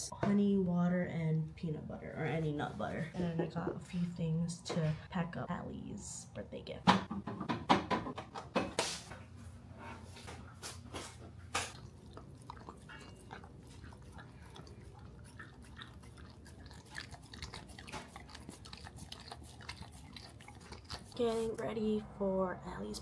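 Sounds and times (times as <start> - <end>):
dog chewing something crunchy: 11.0 - 21.6.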